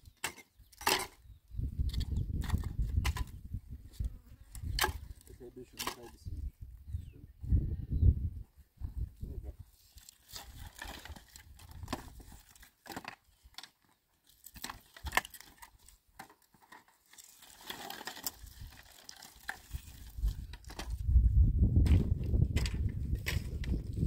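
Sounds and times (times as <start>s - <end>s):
dry sticks rustling and knocking: 0.0s - 1.2s, 1.8s - 3.4s, 4.5s - 6.3s, 9.8s - 21.1s, 21.8s - 24.0s.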